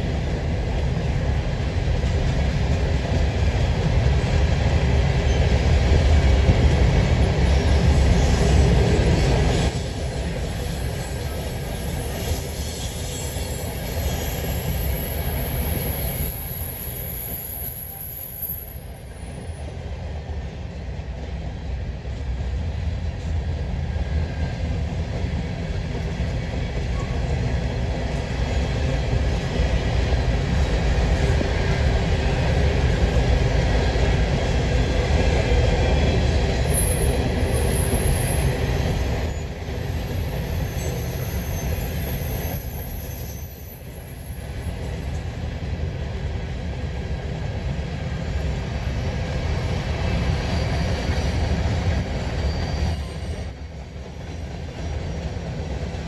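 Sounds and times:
freight train wheels rumbling on rails: 0.0 - 56.0.

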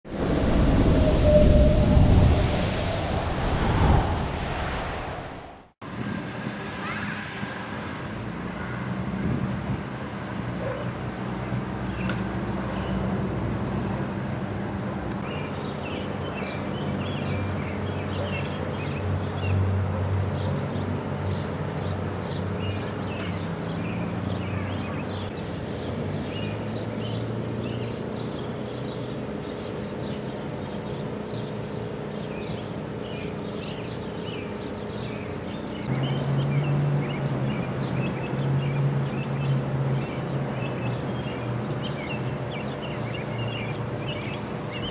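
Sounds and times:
birds chirping and singing: 21.2 - 44.9.

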